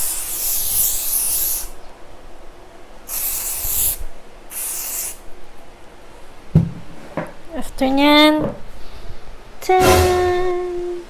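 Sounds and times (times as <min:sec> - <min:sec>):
hairspray hissing: 0:00.0 - 0:01.7, 0:03.1 - 0:05.2.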